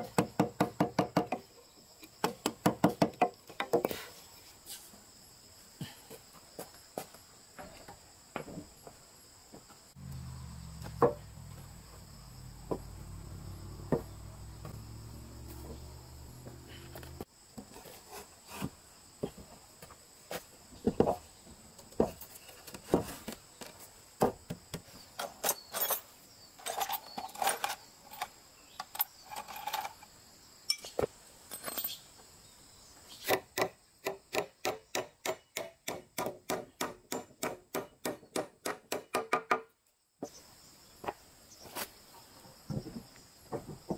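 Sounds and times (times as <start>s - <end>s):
faint insect whine: 0.0s - 38.3s, 39.2s - 43.9s
wooden knocks and taps: 10.8s - 11.2s.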